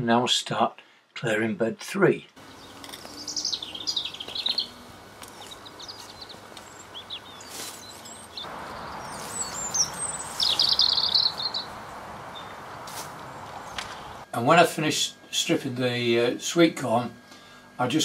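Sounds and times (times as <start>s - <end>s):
songbirds chirping: 2.3s - 14.3s.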